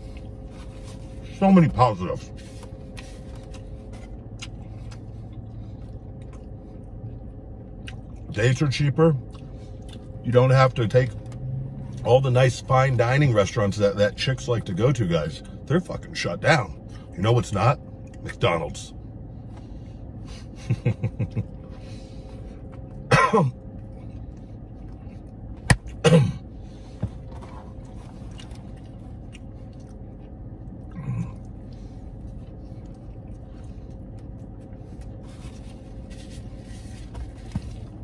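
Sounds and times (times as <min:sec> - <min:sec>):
man eating: 0:00.0 - 0:08.4, 0:09.2 - 0:10.2, 0:19.4 - 0:38.0
steady low hum: 0:00.0 - 0:38.0
loud coughs: 0:23.0 - 0:23.6, 0:25.9 - 0:26.4
short grunts: 0:30.9 - 0:31.5.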